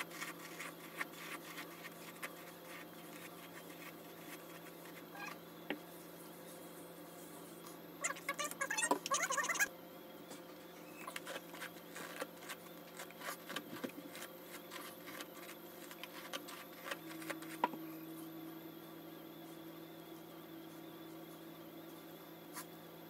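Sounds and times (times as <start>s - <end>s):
hair crackling while brushed: 0.0s - 5.2s.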